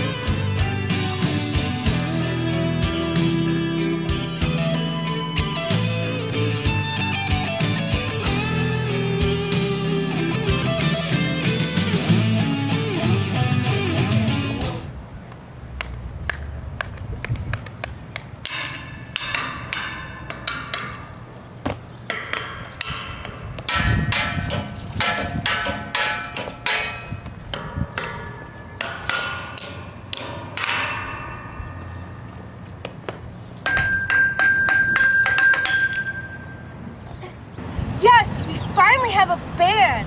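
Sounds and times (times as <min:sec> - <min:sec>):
background music with plucked notes: 0:00.0 - 0:14.9.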